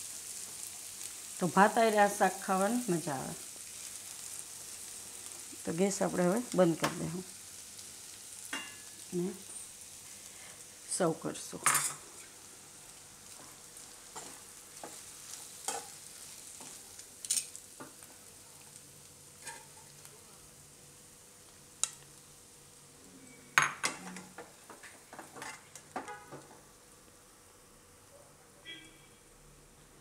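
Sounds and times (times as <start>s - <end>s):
faint sizzle from pan: 0.0s - 30.0s
steel spoon scraping a pan: 14.2s - 16.0s, 19.4s - 19.9s.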